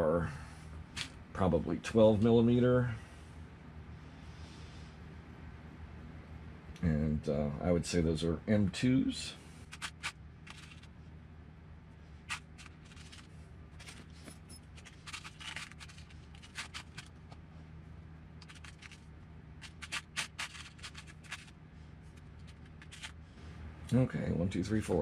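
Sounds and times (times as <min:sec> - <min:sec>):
metal screws clinking in plastic tub: 0:12.3 - 0:17.1.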